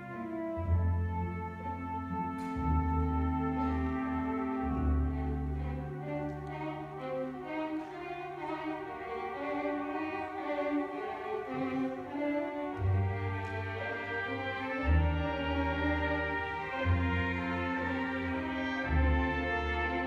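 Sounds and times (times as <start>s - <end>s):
deep bass notes: 0.0s - 6.6s
violins sustained notes: 0.0s - 20.0s.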